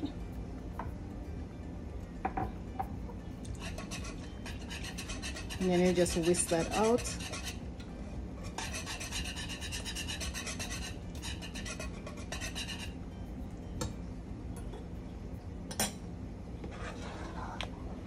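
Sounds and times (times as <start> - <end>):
whisk scraping in a pot: 3.5 - 7.6, 8.4 - 13.0, 16.7 - 17.6.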